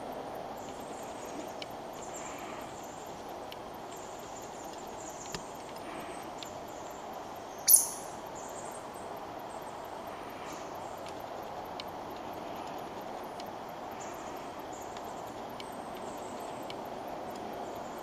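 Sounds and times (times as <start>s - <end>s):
outdoor background hiss: 0.0s - 18.0s
faint high ticks: 11.0s - 14.1s, 14.8s - 17.6s.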